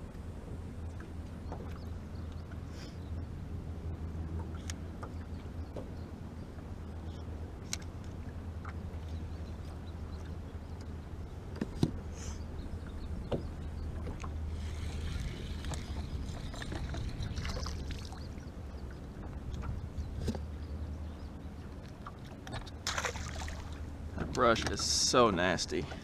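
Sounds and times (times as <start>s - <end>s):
low hum: 0.0s - 26.0s
knocks against boat: 13.3s - 13.5s.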